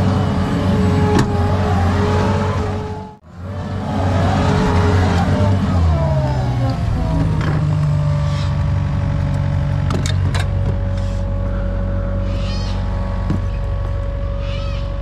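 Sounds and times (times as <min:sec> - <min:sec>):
diesel engine running: 0:00.0 - 0:15.0
short high squeal: 0:12.1 - 0:13.0, 0:14.3 - 0:15.0.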